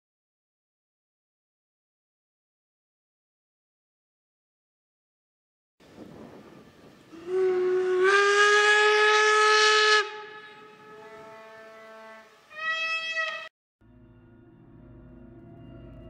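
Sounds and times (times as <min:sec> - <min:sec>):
steam locomotive whistle: 0:07.1 - 0:13.5.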